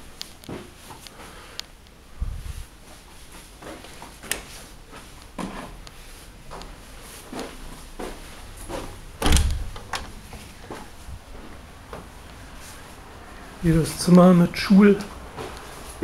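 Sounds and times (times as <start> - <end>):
heavy door thump: 9.1 - 10.3
door clicks and knocks: 9.2 - 10.2.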